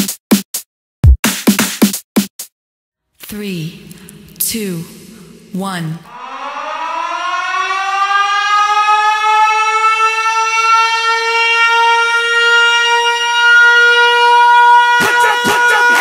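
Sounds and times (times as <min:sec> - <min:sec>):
siren winding up: 0:06.0 - 0:16.0.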